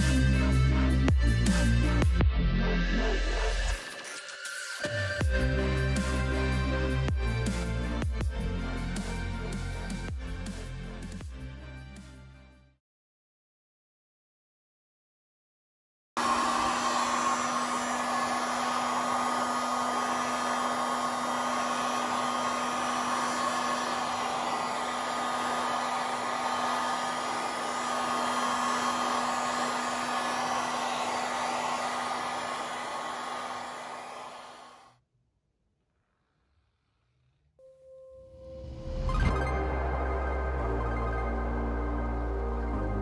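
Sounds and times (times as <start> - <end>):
heat gun blowing: 16.2 - 34.9.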